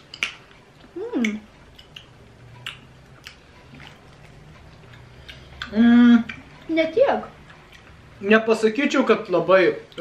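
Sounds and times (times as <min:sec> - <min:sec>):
chewing wet clicks: 0:00.1 - 0:08.0
person humming: 0:01.0 - 0:01.5, 0:05.6 - 0:06.4.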